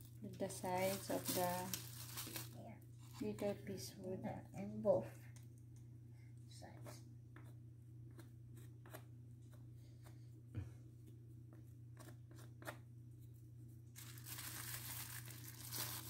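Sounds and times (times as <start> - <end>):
steady low hum: 0.0 - 16.0
rustling tearing noise: 0.6 - 3.2, 14.0 - 16.0.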